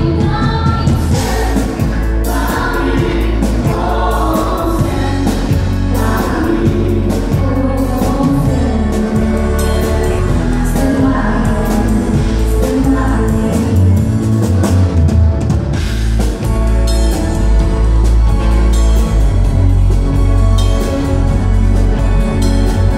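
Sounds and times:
backing vocals: 0.0 - 14.4
woman singing lead: 0.0 - 15.2
drum kit: 0.0 - 22.9
electric guitar: 0.0 - 22.9.

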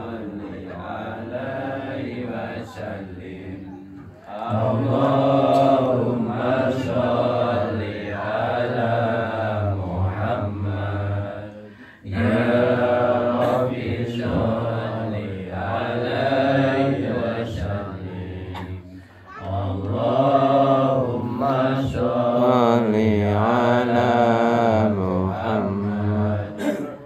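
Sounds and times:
man chanting: 20.8 - 26.7.

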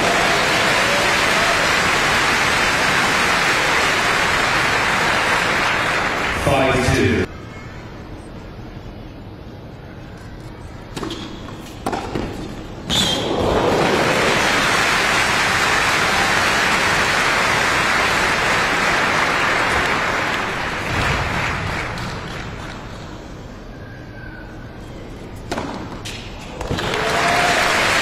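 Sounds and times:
crowd applauding: 0.0 - 6.8, 13.3 - 22.9, 26.6 - 28.0
tennis ball striking racket: 10.9 - 12.7, 25.5 - 26.2.

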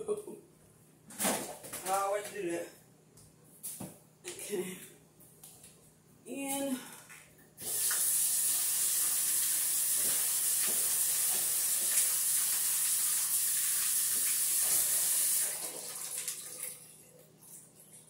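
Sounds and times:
faucet water running: 7.6 - 18.0.

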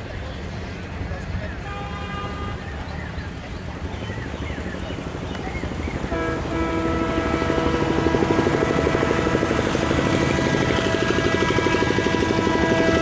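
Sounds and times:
diesel engine throbbing: 5.7 - 13.0
locomotive horn blast: 6.1 - 13.0.

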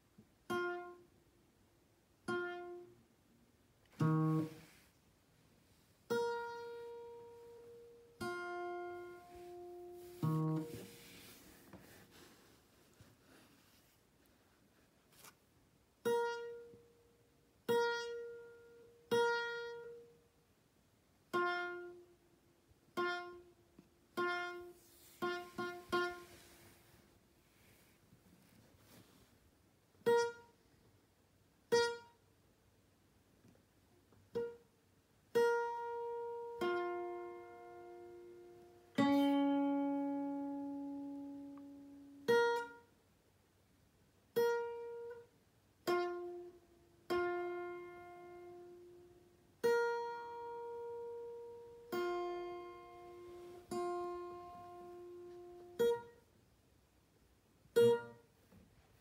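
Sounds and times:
guitar notes plucked: 0.5 - 1.1, 2.2 - 3.0, 3.9 - 4.7, 6.1 - 11.4, 16.0 - 16.9, 17.6 - 20.2, 21.3 - 22.2, 22.9 - 26.4, 30.0 - 30.6, 31.7 - 32.2, 34.2 - 34.7, 35.3 - 42.9, 44.3 - 56.3, 57.7 - 58.3.

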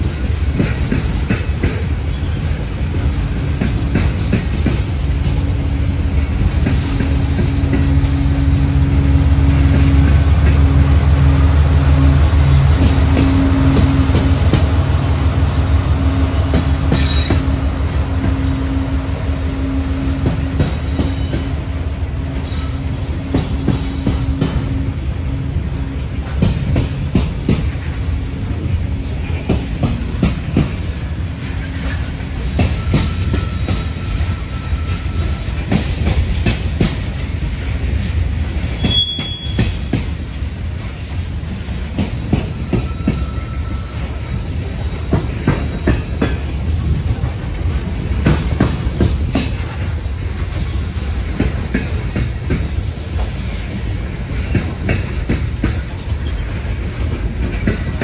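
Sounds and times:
wheels clicking over rail joints: 0.0 - 8.3, 20.1 - 58.0
train cars rumbling past: 0.0 - 58.0.

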